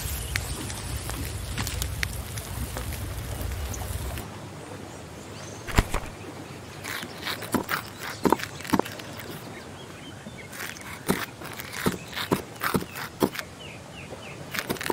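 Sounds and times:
campfire crackling: 0:00.0 - 0:04.3, 0:05.7 - 0:06.2.

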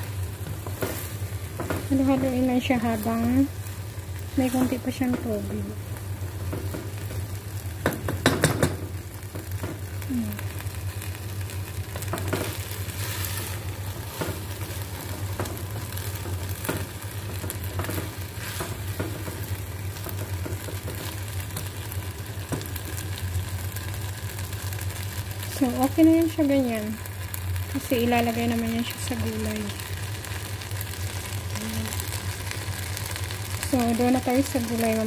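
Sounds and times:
rice sizzling: 0:00.0 - 0:35.0
spatula scraping a pot: 0:12.5 - 0:14.5.

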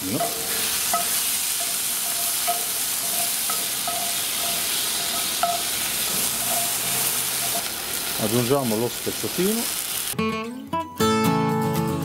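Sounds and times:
food sizzling in oil: 0:00.0 - 0:10.2
spoon scraping a pan: 0:00.1 - 0:07.8.

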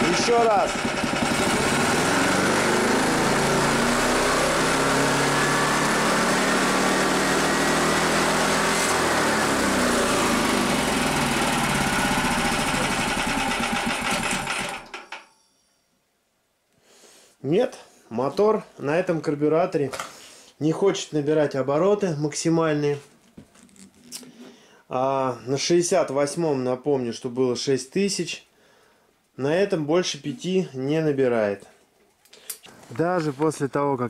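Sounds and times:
engine revving: 0:00.0 - 0:14.9.

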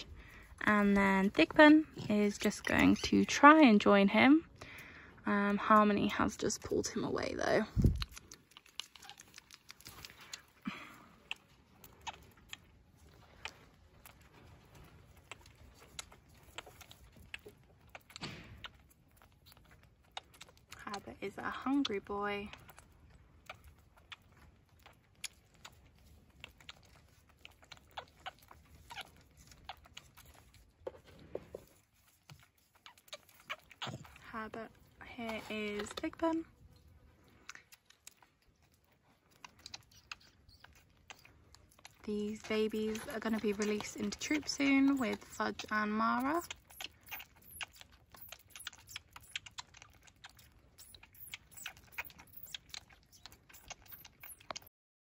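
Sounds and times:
baby monkey sucking from bottle: 0:00.0 - 0:06.7, 0:07.6 - 0:54.7
short squeaks: 0:39.6 - 0:41.3, 0:42.3 - 0:49.6, 0:50.8 - 0:54.7.

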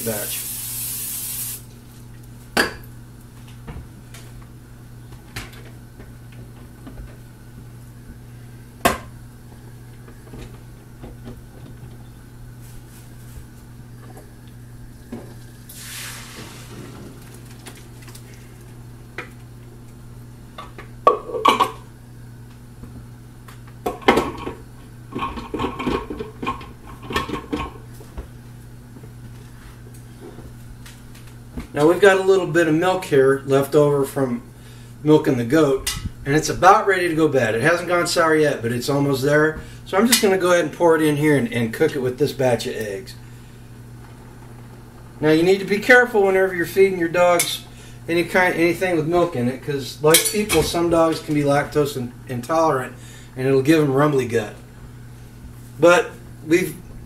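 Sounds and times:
steady low hum: 0:00.0 - 0:57.0
metal pots and pans clattering: 0:23.9 - 0:27.8.

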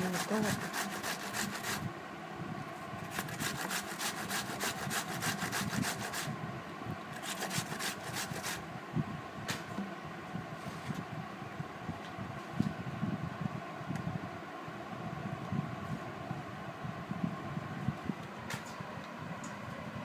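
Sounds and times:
cucumber rasping on metal grater: 0:00.0 - 0:01.8, 0:03.1 - 0:06.3, 0:07.2 - 0:08.6.

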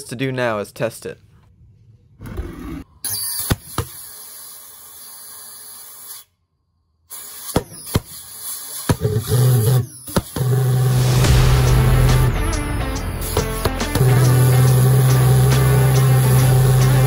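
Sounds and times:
compressed air hissing: 0:03.4 - 0:06.3, 0:07.1 - 0:17.0
low buzzing drone: 0:10.5 - 0:17.0.

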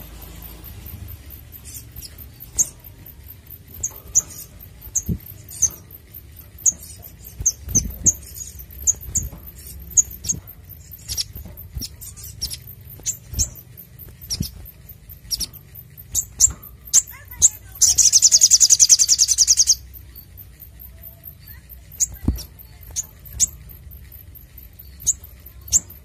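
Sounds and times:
sunbird high chirps: 0:00.0 - 0:26.0
soft thumps: 0:22.0 - 0:23.6.

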